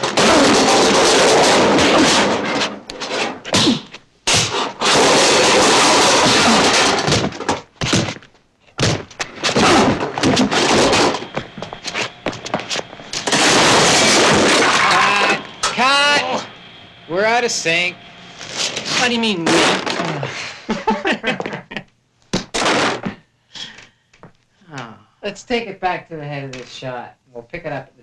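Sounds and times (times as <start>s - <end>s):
breaking crashes: 0.0s - 8.2s, 8.8s - 11.3s, 13.1s - 15.8s, 18.9s - 20.4s, 22.4s - 23.2s.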